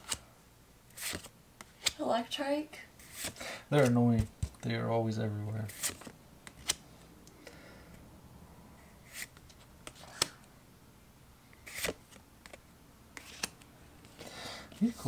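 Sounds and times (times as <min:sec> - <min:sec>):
trading cards flicking and snapping: 0:00.9 - 0:02.0, 0:05.7 - 0:06.8, 0:09.1 - 0:10.5, 0:11.6 - 0:12.6, 0:13.2 - 0:14.2.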